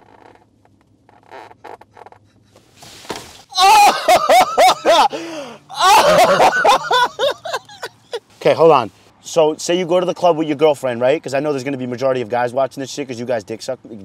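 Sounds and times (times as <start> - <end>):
man vocalising high-pitched: 4.8 - 7.9.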